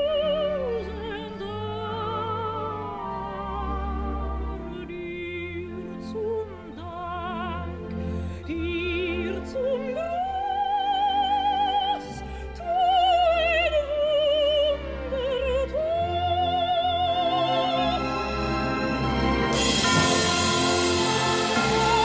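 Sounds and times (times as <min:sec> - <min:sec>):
orchestral accompaniment: 0:00.0 - 0:22.0.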